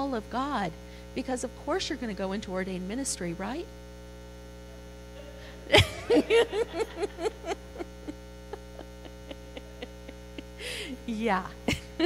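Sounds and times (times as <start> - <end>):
electrical mains hum: 0.0 - 12.0
person laughing: 5.2 - 11.1, 11.7 - 12.0.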